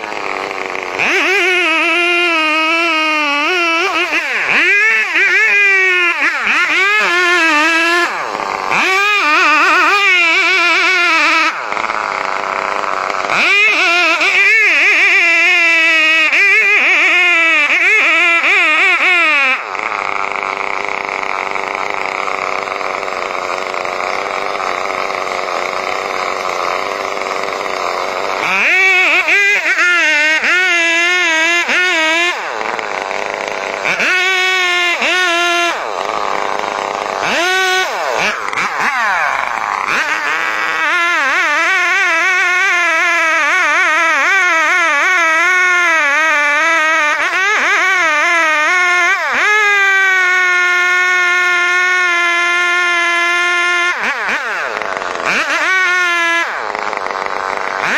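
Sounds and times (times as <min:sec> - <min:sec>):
chainsaw cutting wood: 0:00.0 - 0:57.9.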